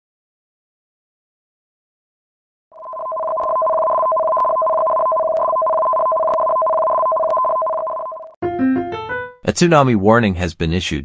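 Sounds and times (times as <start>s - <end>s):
electronic alert tone: 2.8s - 8.4s.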